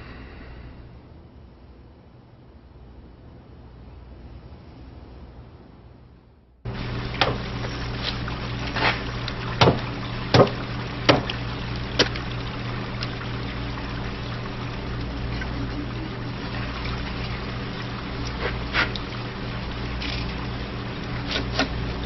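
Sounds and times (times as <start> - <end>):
low mechanical hum: 0.0 - 22.0
running water: 6.7 - 22.0
sharp wet knocks: 7.2 - 13.2, 21.2 - 21.8.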